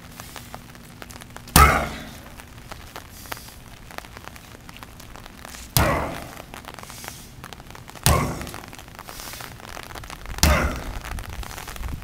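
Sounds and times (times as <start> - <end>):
sledgehammer striking rubber tire: 1.6 - 2.1, 5.8 - 6.3, 8.0 - 8.6, 10.4 - 10.9.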